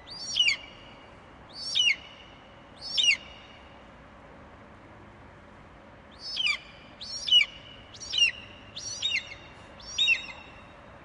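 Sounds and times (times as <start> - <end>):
eagle calling: 0.1 - 0.9, 1.5 - 2.2, 2.8 - 3.5, 6.1 - 10.6.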